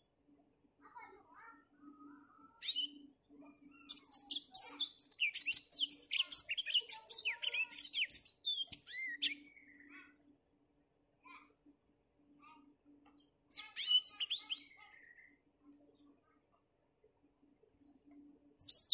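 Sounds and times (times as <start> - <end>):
bird singing twittering song: 2.1 - 10.2, 13.0 - 16.1, 17.8 - 18.9.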